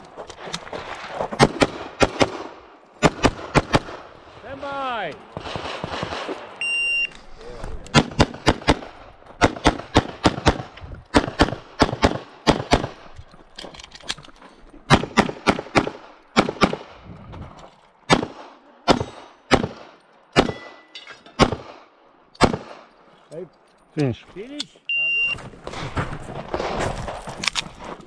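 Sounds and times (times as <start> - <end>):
pistol shots: 5.4 - 6.5, 7.9 - 13.1, 14.9 - 17.0, 18.1 - 22.9.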